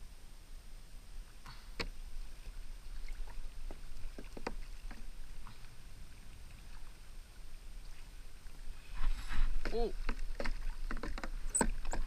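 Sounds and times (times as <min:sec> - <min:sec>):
rumble of wind and water: 0:00.0 - 0:12.0
light clicks and knocks: 0:09.6 - 0:12.0.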